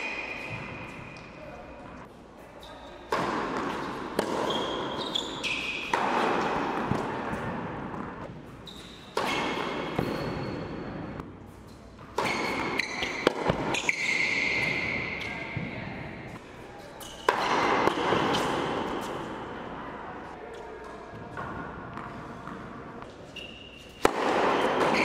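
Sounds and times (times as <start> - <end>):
sneakers squeaking on court: 2.6 - 16.1, 21.3 - 25.0
tennis ball bouncing: 3.1 - 8.3, 12.0 - 14.0, 23.8 - 25.0
tennis racquet striking ball: 3.1 - 8.3, 12.0 - 15.7, 17.2 - 19.3, 23.9 - 25.0.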